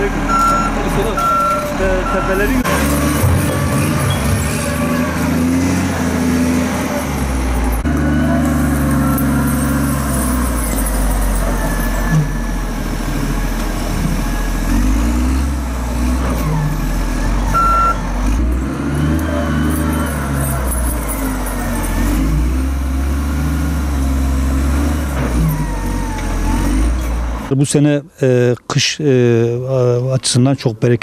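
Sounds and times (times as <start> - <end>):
wheel loader diesel engine: 0.0 - 28.5
short beep: 0.3 - 2.4, 17.6 - 18.0.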